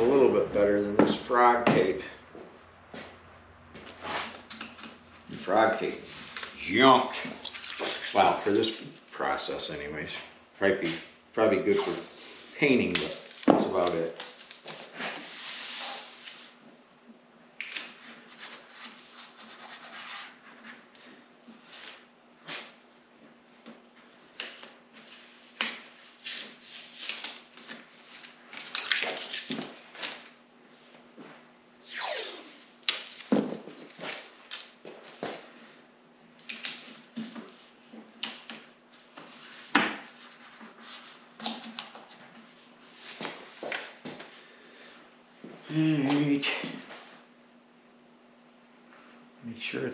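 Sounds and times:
paper rustling and scraping: 3.9s - 9.1s.

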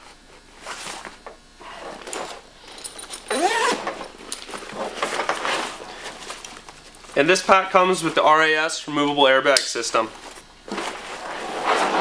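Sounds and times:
straps buckles and zips clattering: 1.6s - 6.6s.

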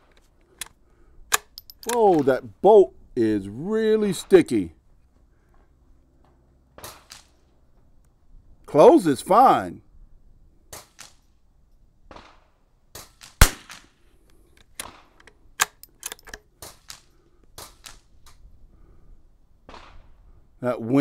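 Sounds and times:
rifle bolt clicking: 0.1s - 2.2s, 14.6s - 16.5s
rifle shot: 6.8s - 7.4s, 12.1s - 14.0s, 19.6s - 20.2s.

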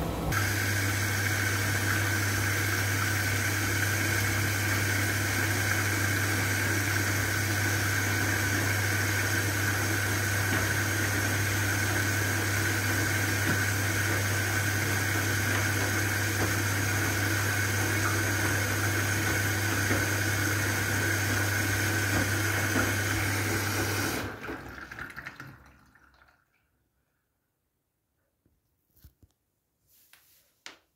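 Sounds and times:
washing machine motor hum: 0.0s - 25.6s
water sloshing in drum: 10.3s - 26.3s
water dripping: 24.4s - 26.9s.

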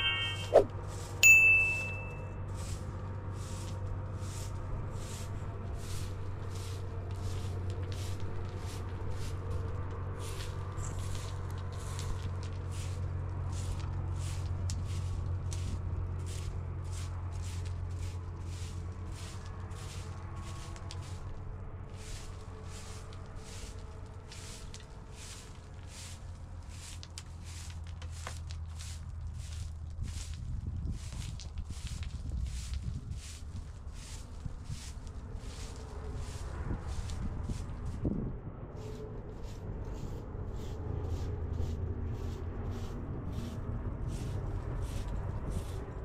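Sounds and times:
broom sweeping stony ground: 0.0s - 38.1s, 38.8s - 46.0s.

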